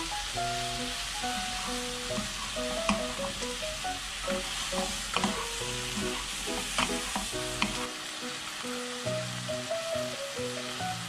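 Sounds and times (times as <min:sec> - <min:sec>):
vegetables sizzling in a wok: 0:00.0 - 0:11.0
spatulas knocking on pan: 0:02.1 - 0:03.4.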